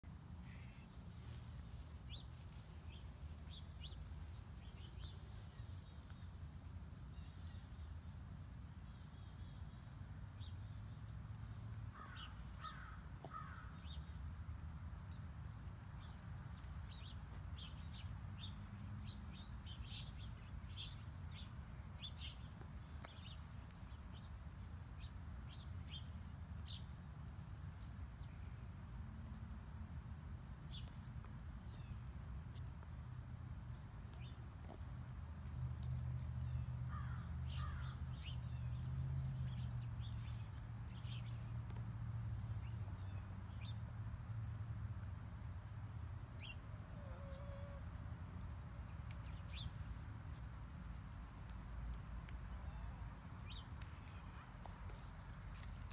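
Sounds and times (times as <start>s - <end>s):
small birds chirping: 48.5s - 50.3s.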